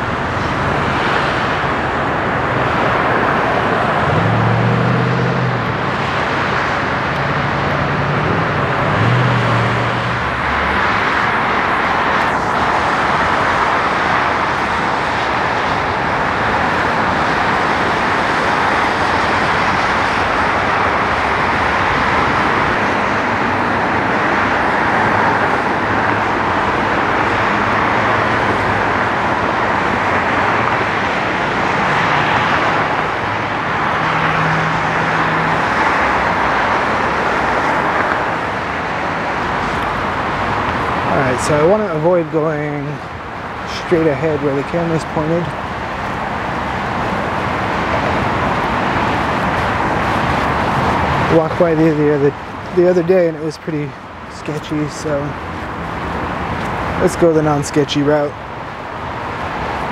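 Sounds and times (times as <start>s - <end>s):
freeway traffic on wet pavement: 0.0s - 59.9s
heavy vehicle engine hum: 0.0s - 59.9s.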